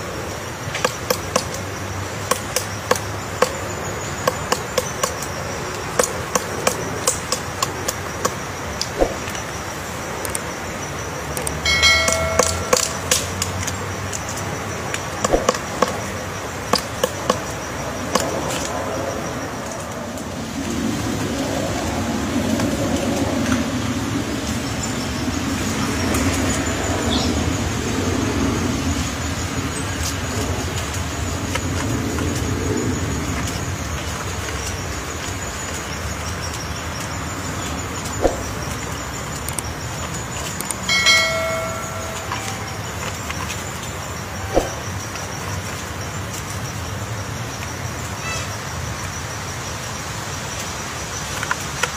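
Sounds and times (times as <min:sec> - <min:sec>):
woodpecker pecking knocks: 0:00.8 - 0:03.6, 0:04.2 - 0:09.4, 0:11.4 - 0:13.8, 0:15.2 - 0:18.3, 0:38.2 - 0:38.8, 0:44.5 - 0:44.9.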